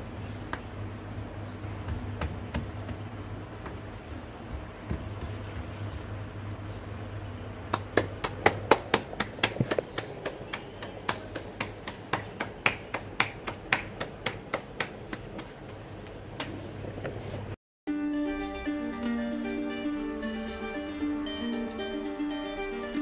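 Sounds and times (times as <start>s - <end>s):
palms slapping dough: 1.6s - 6.4s, 7.7s - 17.6s.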